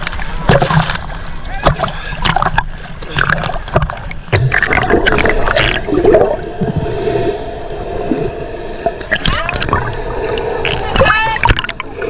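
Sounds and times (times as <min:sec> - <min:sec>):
water sloshing and splashing: 0:00.0 - 0:12.0.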